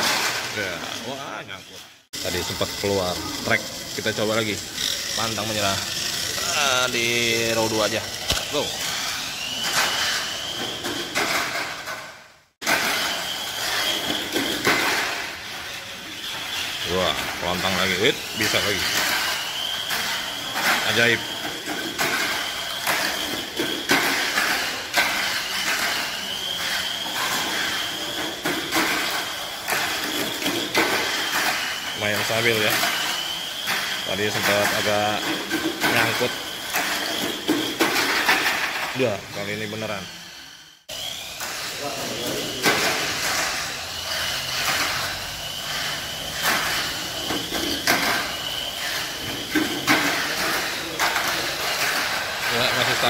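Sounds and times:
toy car motor and gear whine: 0:00.0 - 0:53.0
clacks on plastic track: 0:16.9 - 0:39.0.

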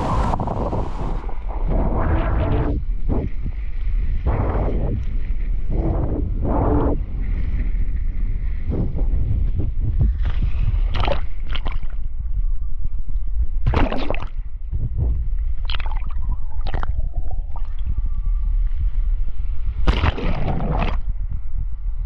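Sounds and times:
water splashing and bubbling: 0:09.8 - 0:12.0, 0:13.6 - 0:14.5, 0:15.6 - 0:17.9, 0:19.8 - 0:21.2
sea water sloshing: 0:10.1 - 0:12.0, 0:19.9 - 0:21.1.

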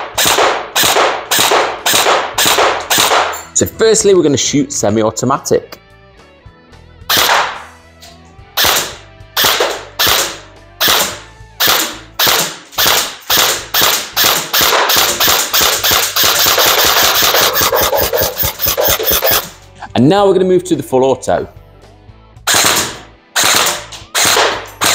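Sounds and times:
airsoft rifle shots: 0:00.0 - 0:03.4, 0:07.1 - 0:07.6, 0:08.6 - 0:19.5, 0:22.5 - 0:24.9.

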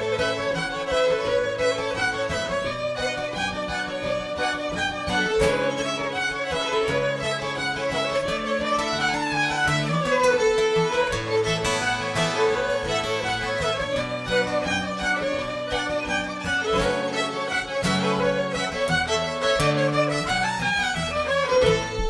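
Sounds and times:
fiddles playing a tune: 0:00.0 - 0:22.0
guitar strumming: 0:00.0 - 0:22.0.

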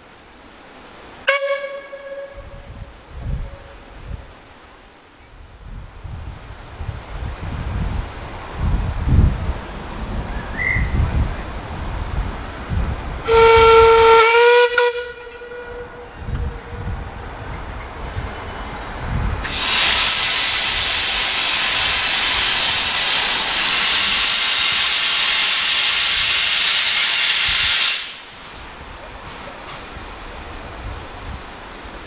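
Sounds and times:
steam locomotive whistle: 0:01.3 - 0:02.7, 0:13.2 - 0:16.8, 0:19.5 - 0:28.2
steam hissing: 0:19.4 - 0:32.0.

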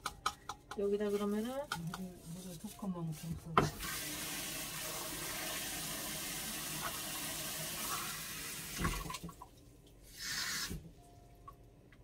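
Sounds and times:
kitchen tap running: 0:03.6 - 0:09.4.

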